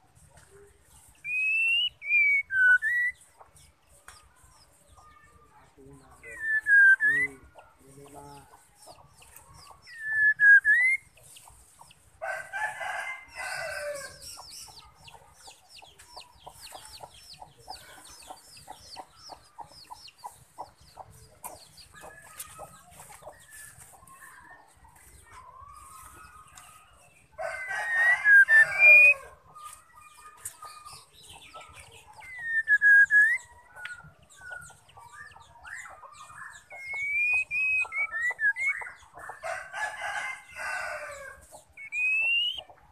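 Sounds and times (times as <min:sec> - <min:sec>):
bird swooping whistles: 0:01.3 - 0:03.1, 0:09.9 - 0:11.0, 0:41.8 - 0:42.6
rooster crowing: 0:12.2 - 0:14.2, 0:27.4 - 0:29.3, 0:39.4 - 0:41.4
bird rapid ticking calls: 0:30.2 - 0:39.4, 0:41.6 - 0:42.9.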